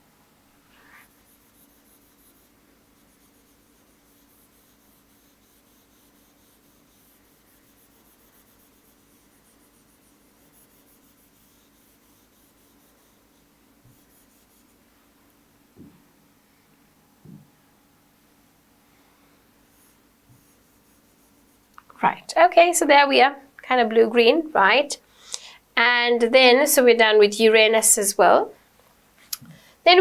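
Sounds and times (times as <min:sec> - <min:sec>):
stylus scratching on screen: 0:00.7 - 0:14.8, 0:19.6 - 0:23.0.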